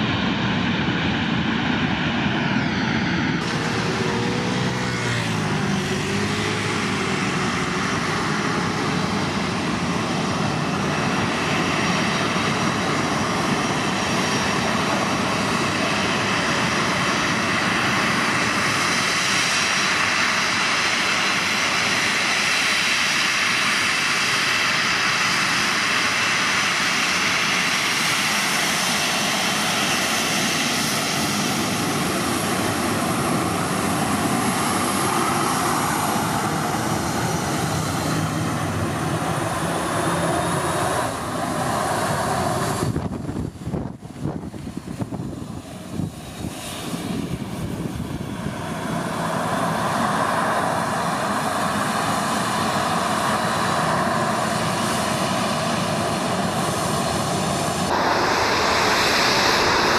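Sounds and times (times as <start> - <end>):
jet engines hissing and whining: 0.0 - 59.9
thin high jet whine: 0.0 - 59.9.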